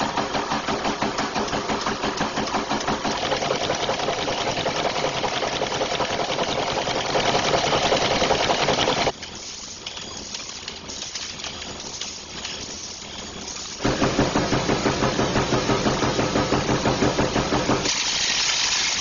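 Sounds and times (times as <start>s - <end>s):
press machine clattering: 0.0s - 9.2s, 13.5s - 18.1s.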